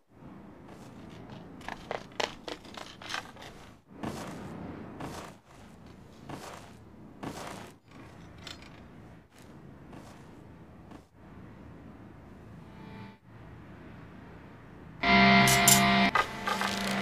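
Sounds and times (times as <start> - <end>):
short scraping rustles: 0.6 - 11.1.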